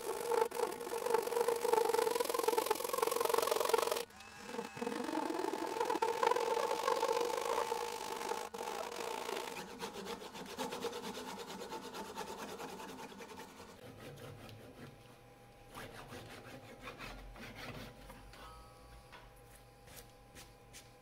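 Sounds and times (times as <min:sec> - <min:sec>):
wooden disc scraping on wood: 0:00.0 - 0:14.6.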